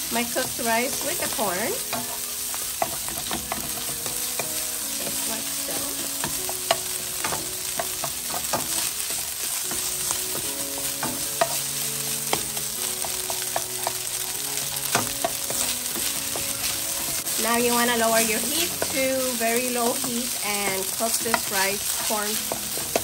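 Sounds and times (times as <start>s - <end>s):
food sizzling in a pan: 0.0s - 23.0s
utensil scraping a pan: 0.6s - 23.0s.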